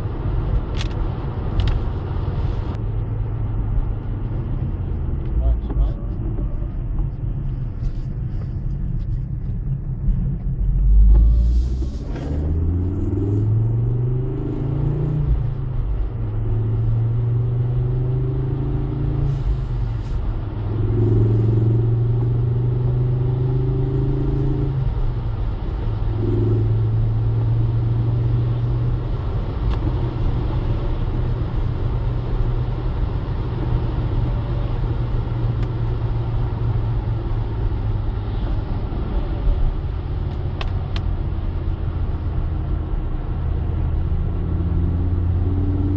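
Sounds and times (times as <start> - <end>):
tyre and road rumble: 0.0 - 45.9
car engine revving: 10.6 - 31.8, 32.5 - 45.9.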